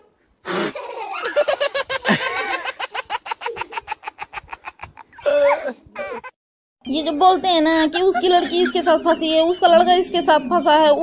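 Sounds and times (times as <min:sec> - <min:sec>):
person laughing hard: 0:00.5 - 0:06.3.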